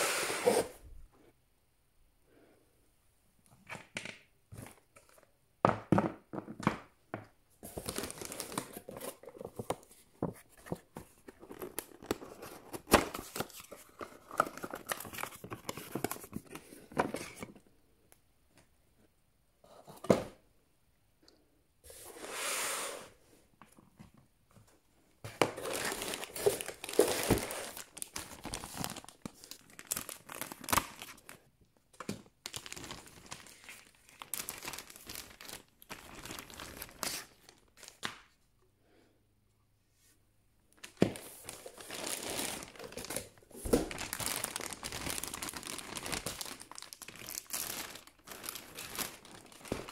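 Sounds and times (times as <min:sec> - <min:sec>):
plastic packaging crinkling: 0:07.6 - 0:09.9, 0:25.4 - 0:31.4, 0:32.3 - 0:38.1, 0:40.8 - 0:49.9.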